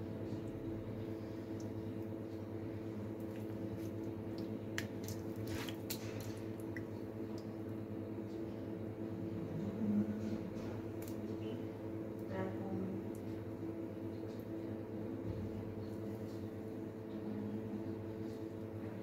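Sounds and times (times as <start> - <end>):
steady low hum: 0.0 - 19.0
wet squelching of meat: 3.0 - 7.6.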